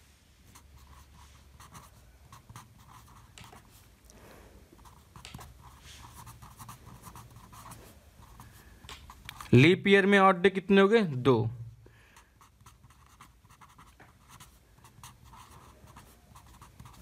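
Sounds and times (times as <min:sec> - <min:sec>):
marker pen scratching on paper: 0:00.5 - 0:03.8, 0:04.8 - 0:09.6, 0:12.4 - 0:17.0.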